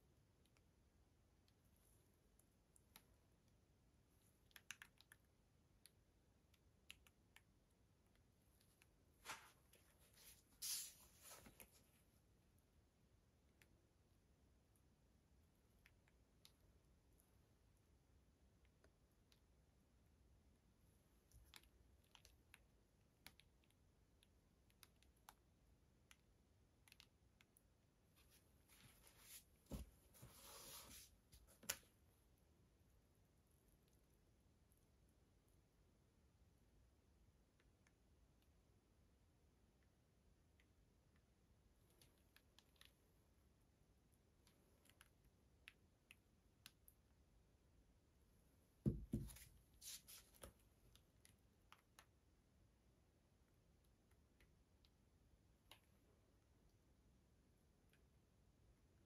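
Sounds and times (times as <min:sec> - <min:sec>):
faint clicks and taps: 0:01.4 - 0:10.3, 0:21.2 - 0:30.4, 0:53.8 - 0:56.1
soft rustle: 0:09.1 - 0:12.1, 0:28.2 - 0:31.8, 0:49.2 - 0:50.7.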